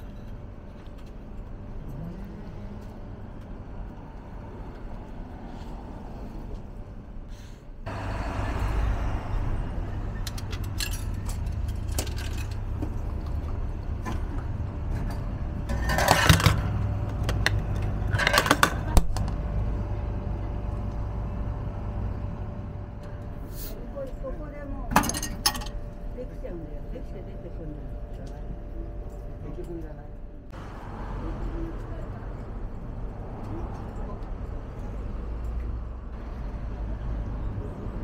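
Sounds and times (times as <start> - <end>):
metal and glass clatter: 10.2 - 13.1, 24.9 - 25.8.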